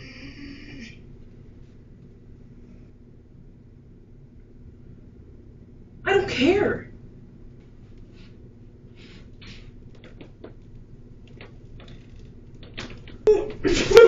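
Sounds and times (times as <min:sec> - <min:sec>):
low steady hum: 0:00.0 - 0:14.0
clicks and rustles of handling: 0:09.9 - 0:13.6.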